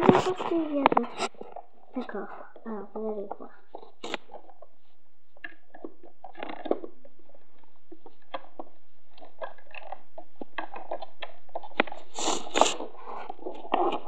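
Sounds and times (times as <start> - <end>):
fingers rubbing plastic: 3.2 - 14.0.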